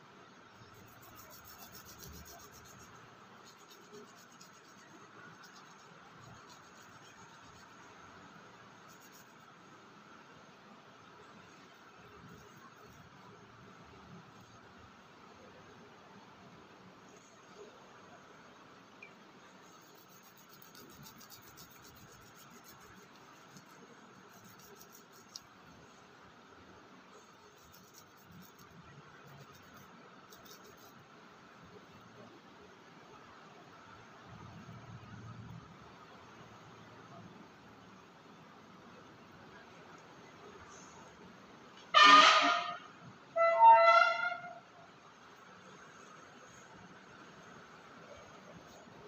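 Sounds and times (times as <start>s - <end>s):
hands rubbing wet clay: 19.7s - 25.6s.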